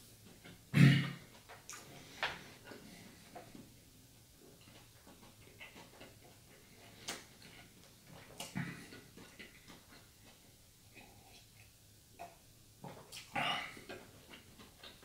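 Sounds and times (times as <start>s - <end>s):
lip smacks and wet clicks: 1.6s - 2.0s, 6.9s - 10.4s.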